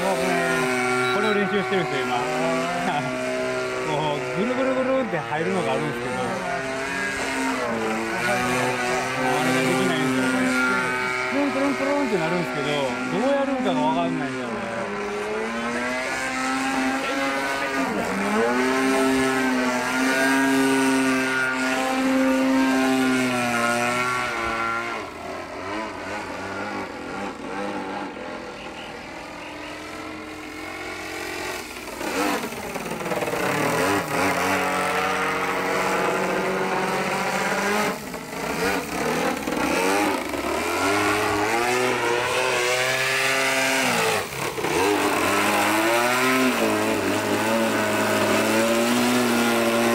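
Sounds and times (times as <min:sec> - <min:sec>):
model plane engine: 0:00.0 - 0:49.9.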